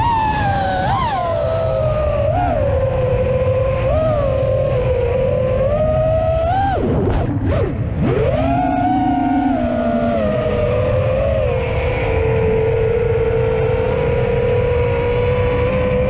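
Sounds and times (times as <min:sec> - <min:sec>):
drone motor whine: 0:00.0 - 0:16.0
wind rumble on microphone: 0:00.0 - 0:16.0.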